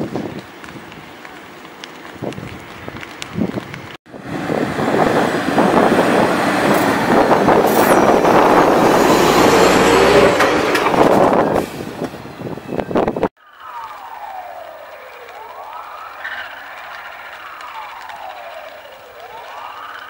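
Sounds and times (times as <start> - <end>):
fire truck driving past: 4.1 - 12.6, 13.5 - 20.0.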